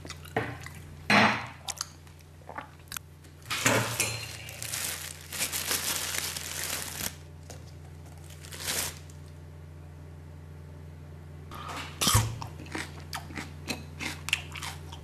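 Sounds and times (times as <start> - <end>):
plastic bag crinkling: 3.5 - 9.3.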